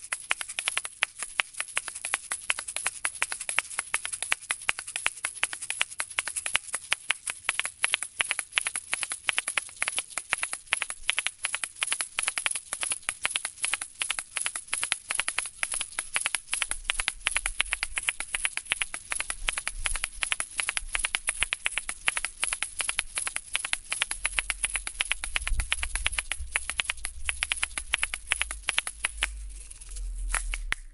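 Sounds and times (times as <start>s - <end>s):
shakers rattling and clacking: 0.0s - 30.9s
low rumble: 29.1s - 30.9s.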